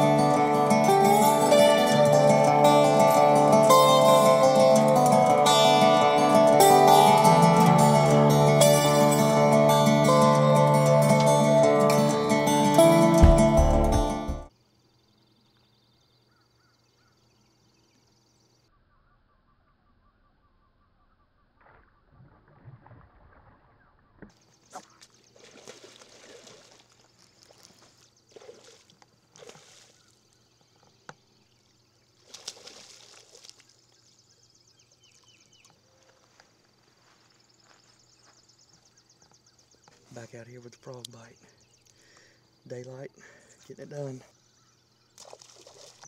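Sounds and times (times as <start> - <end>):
fish splashing at water surface: 24.8 - 30.0, 32.2 - 33.6.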